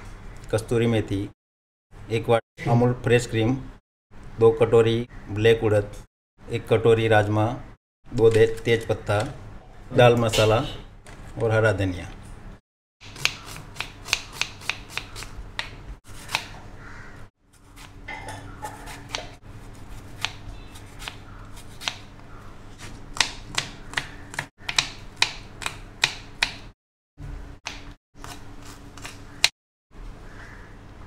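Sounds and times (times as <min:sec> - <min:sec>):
knife chopping on wooden board: 0:18.6 - 0:19.4, 0:22.8 - 0:26.7.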